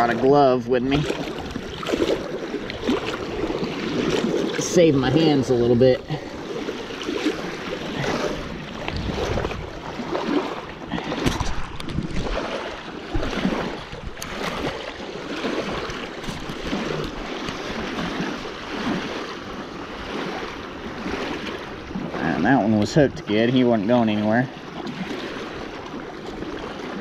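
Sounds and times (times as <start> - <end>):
waves splashing on rocky shore: 0.0 - 27.0
wind on microphone: 7.0 - 19.2.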